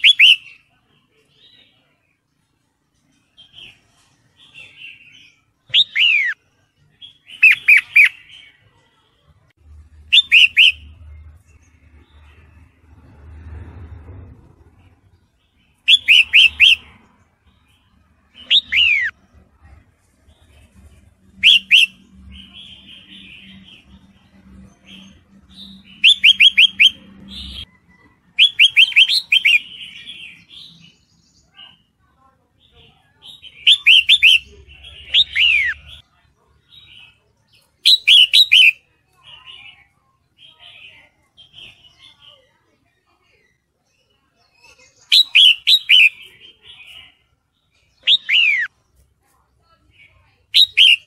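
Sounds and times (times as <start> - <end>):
bird chattering calls: 10.1 - 10.8, 21.4 - 22.0, 37.8 - 38.8, 44.8 - 47.0, 50.6 - 51.0.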